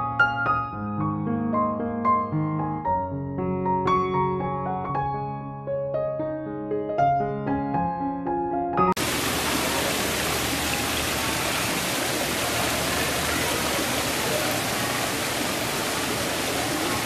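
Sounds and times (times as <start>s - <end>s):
piano music: 0.0s - 11.0s
waterfall splashing over rocks: 9.0s - 17.0s.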